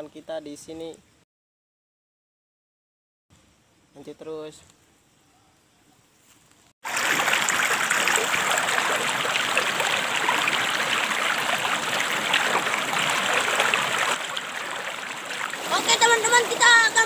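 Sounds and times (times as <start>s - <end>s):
stream rushing and splashing: 6.8s - 17.0s.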